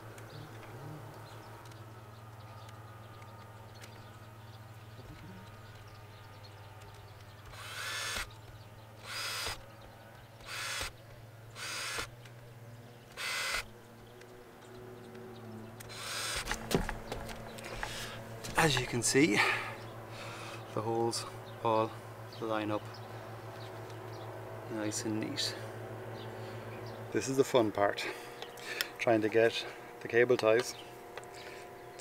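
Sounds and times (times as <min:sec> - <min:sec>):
cordless drill drilling plastic: 0:07.5 - 0:08.3, 0:09.0 - 0:09.6, 0:10.4 - 0:11.0, 0:11.6 - 0:12.1, 0:13.2 - 0:13.7.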